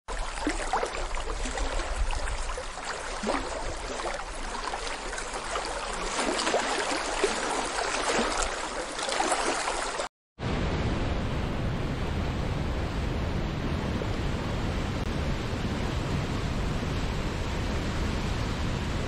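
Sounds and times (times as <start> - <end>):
water gurgles and splashes: 0.1 - 10.1.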